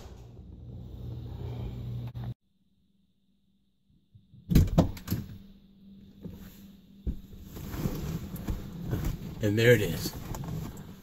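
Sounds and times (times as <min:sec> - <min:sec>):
rustling of person getting in: 0:06.0 - 0:11.0.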